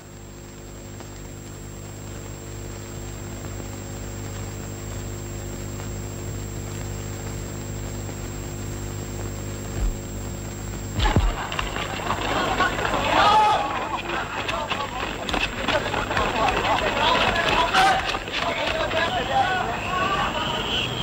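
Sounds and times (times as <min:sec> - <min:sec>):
film soundtrack hiss: 0:00.0 - 0:21.0
mains hum: 0:00.0 - 0:21.0
low thump: 0:09.8 - 0:10.1, 0:11.0 - 0:11.5.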